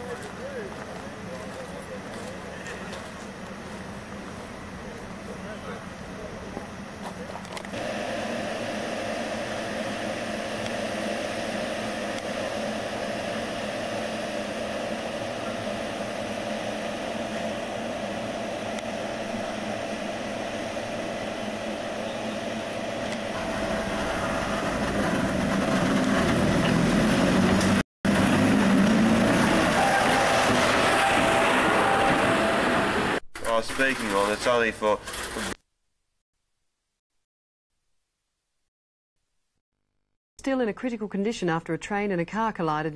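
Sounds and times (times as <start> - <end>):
electric train humming and rumbling: 0.0 - 33.2.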